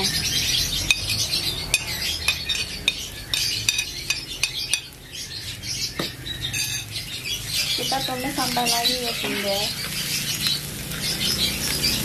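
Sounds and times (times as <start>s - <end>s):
food sizzling in oil: 0.0s - 12.0s
metal spatula scraping pan: 6.5s - 7.9s, 9.1s - 9.8s.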